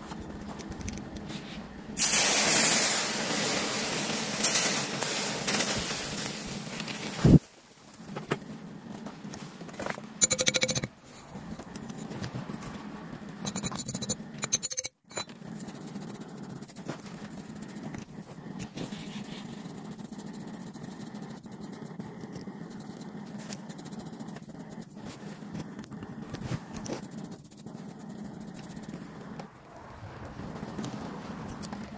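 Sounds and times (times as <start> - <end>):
rapid clicking: 10.2 - 10.9, 13.4 - 29.5.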